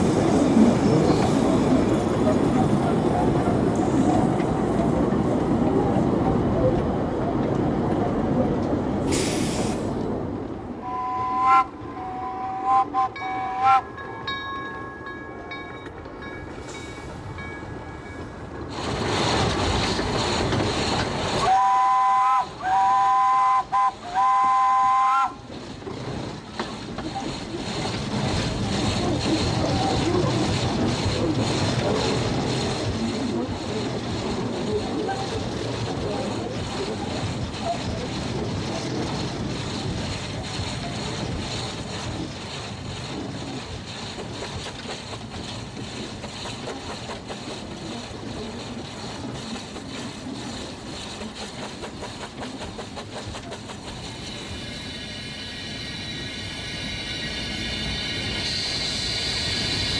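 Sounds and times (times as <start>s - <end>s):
steam locomotive running: 0.0s - 59.9s
steam hiss: 9.0s - 10.0s, 35.5s - 59.9s
steam whistle toots: 10.8s - 13.9s, 21.4s - 25.4s.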